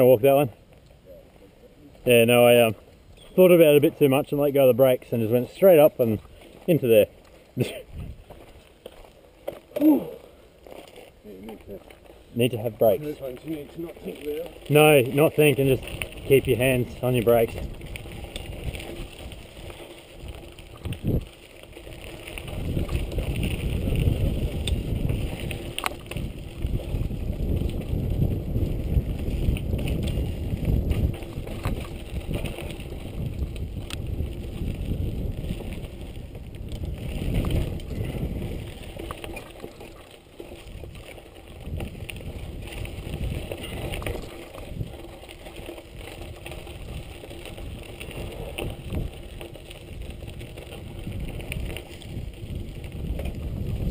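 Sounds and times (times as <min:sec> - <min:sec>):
bike tyres rumbling over dirt: 0:00.0 - 0:01.2, 0:01.9 - 0:53.9
wind noise on microphone: 0:07.8 - 0:08.4, 0:14.6 - 0:53.9
bike knocks and rattles: 0:13.0 - 0:53.9.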